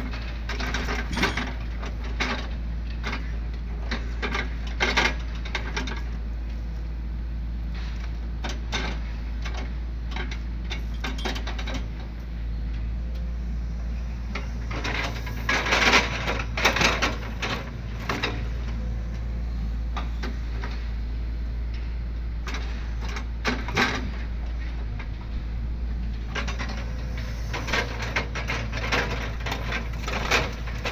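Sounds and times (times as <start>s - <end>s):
diesel engine humming: 9.2s - 30.9s
grapple clattering logs: 26.2s - 30.9s.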